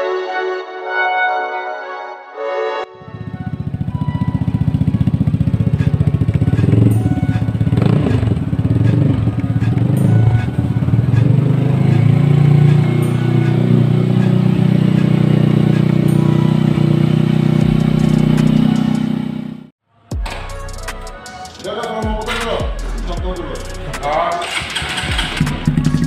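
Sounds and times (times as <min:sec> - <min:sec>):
scooter engine idling and revving: 0:03.0 - 0:19.7, 0:23.7 - 0:26.0.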